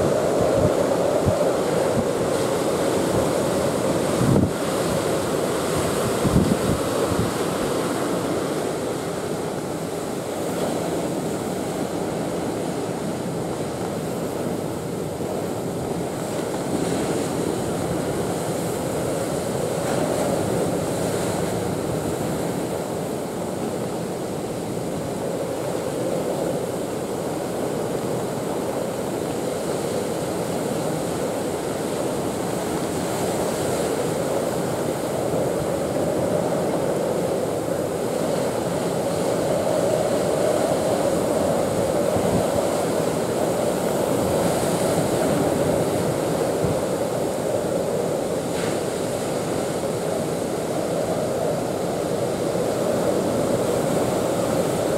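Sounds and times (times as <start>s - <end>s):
wind gust buffeting microphone: 0.0s - 9.2s
heavy surf breaking: 0.0s - 54.9s
strong wind: 0.0s - 54.9s.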